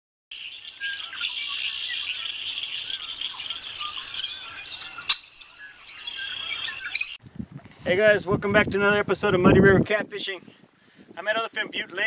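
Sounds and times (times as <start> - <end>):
small birds chirping: 0.3 - 7.2.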